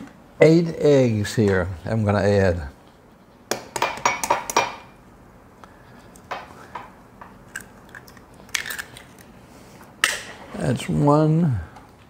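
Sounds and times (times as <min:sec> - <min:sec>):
egg cracking against glass bowl: 0:07.4 - 0:09.3.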